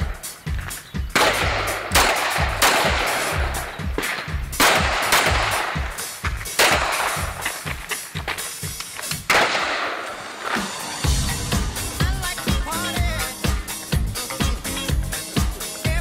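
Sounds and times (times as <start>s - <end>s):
background music with beat: 0.0s - 16.0s
pistol shots with echo: 1.1s - 7.7s, 9.3s - 10.2s.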